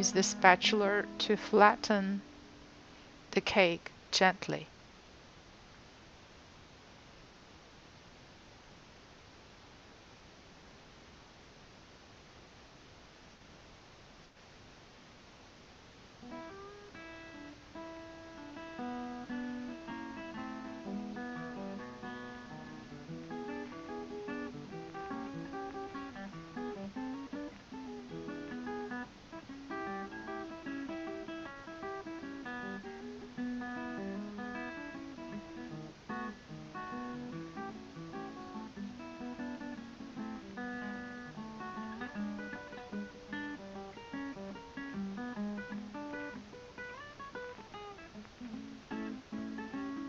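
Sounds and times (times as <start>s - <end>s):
acoustic guitar playing: 0.0s - 3.8s, 16.2s - 50.0s.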